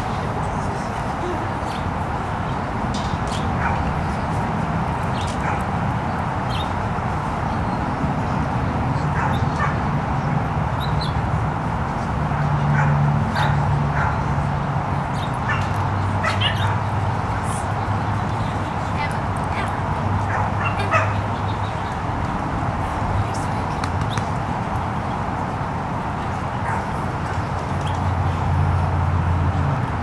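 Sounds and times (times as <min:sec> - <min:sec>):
dogs yipping and barking: 0:03.3 - 0:03.9, 0:09.1 - 0:09.8, 0:15.2 - 0:16.9, 0:19.6 - 0:21.3.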